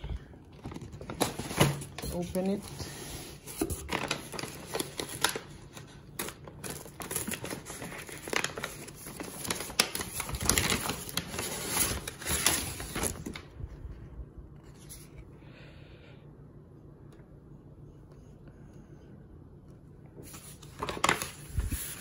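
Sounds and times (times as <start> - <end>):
paper bag crinkling: 3.6 - 13.5, 20.2 - 22.0.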